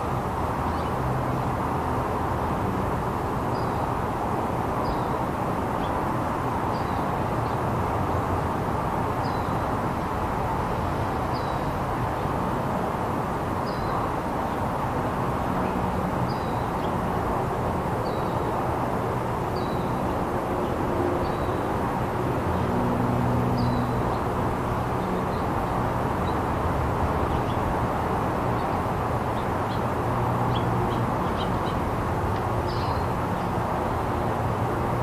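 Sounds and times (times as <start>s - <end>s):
low rushing background noise: 0.0s - 35.0s
small bird chirping: 30.5s - 33.1s.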